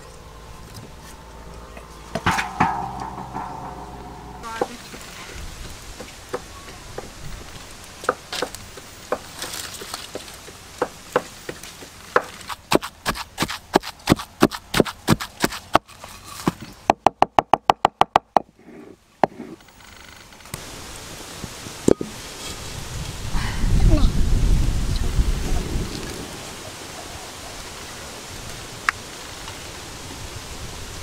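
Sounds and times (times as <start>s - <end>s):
pestle pounding in wooden mortar: 10.1s - 15.9s.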